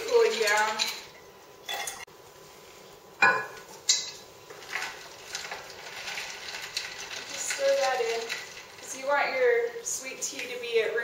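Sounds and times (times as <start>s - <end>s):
ice cubes clinking in glass: 4.7s - 9.0s.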